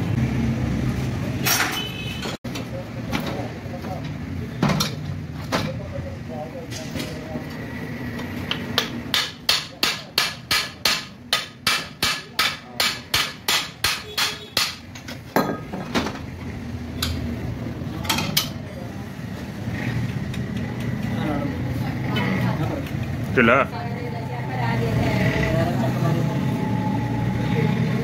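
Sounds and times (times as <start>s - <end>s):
hammer striking metal engine part: 8.2s - 16.2s.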